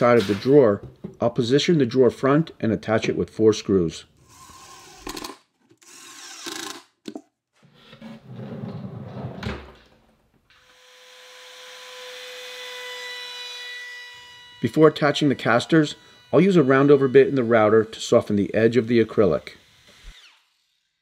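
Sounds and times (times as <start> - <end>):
impact driver driving screws: 4.2 - 6.9
drawer on metal slides: 7.9 - 9.8.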